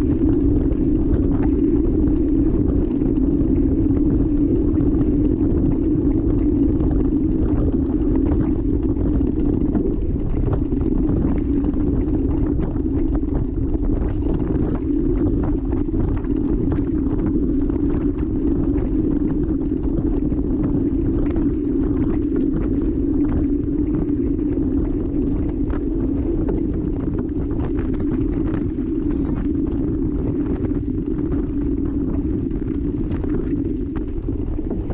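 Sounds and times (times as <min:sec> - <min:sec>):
bike tyres rolling on dirt: 0:00.0 - 0:34.9
muffled wind rumble: 0:00.0 - 0:34.9.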